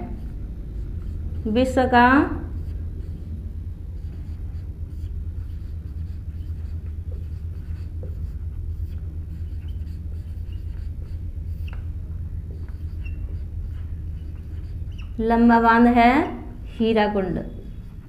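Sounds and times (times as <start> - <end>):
marker writing on whiteboard: 0.0 - 3.4, 4.0 - 15.6
low steady hum: 0.0 - 18.0
marker squeaks: 4.0 - 15.3.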